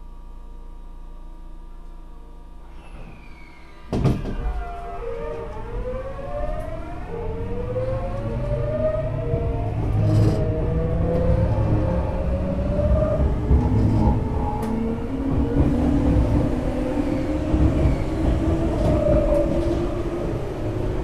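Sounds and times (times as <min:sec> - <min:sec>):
train inverter whine rising: 0:00.1 - 0:21.0.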